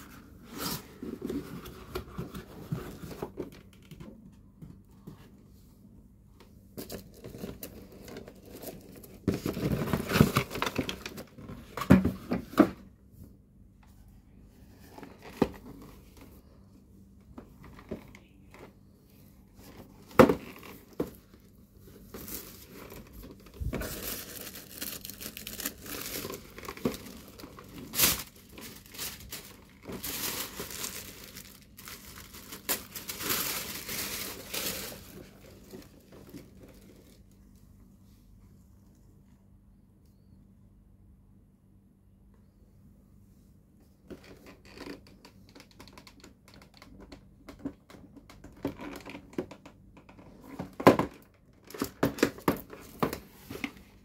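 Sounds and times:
plastic wrap crinkling: 0:21.9 - 0:37.3.

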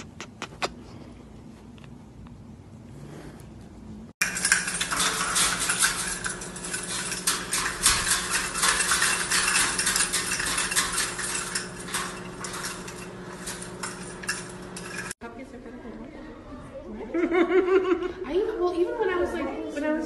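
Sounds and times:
plastic cups clattering together: 0:04.2 - 0:15.2.

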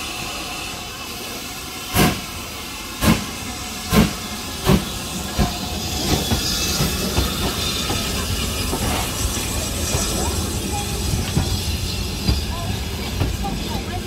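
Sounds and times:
steam hissing: 0:00.0 - 0:14.0
steam locomotive exhaust chuffs: 0:00.0 - 0:14.0.

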